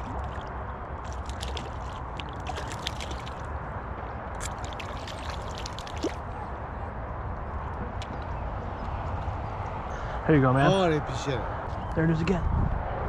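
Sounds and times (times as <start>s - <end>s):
fish splashing at surface: 0.0s - 3.5s, 4.4s - 6.2s
water sloshing: 0.0s - 3.6s, 4.4s - 6.3s.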